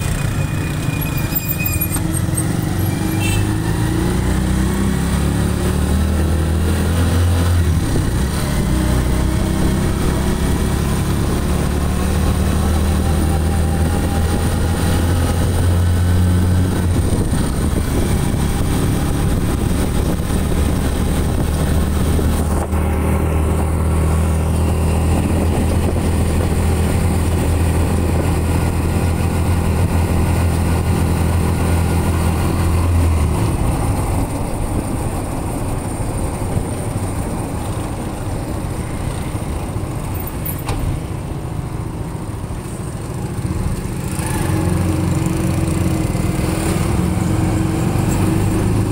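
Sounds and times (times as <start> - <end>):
road noise: 0.0 - 48.9
vehicle engine droning: 0.0 - 48.9.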